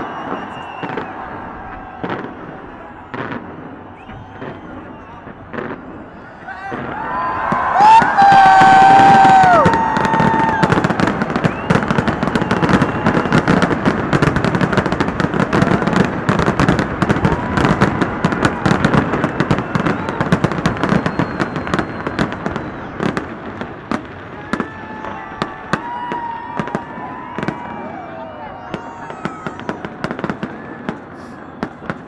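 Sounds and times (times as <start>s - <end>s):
fireworks crackling and banging: 0.0s - 32.0s.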